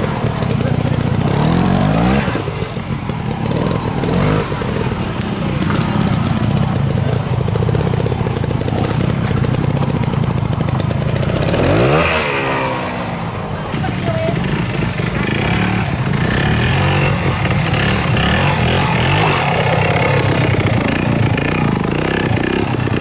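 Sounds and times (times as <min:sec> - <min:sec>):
motorcycle engine at low revs: 0:00.0 - 0:23.0
motorcycle throttle blips: 0:00.0 - 0:23.0.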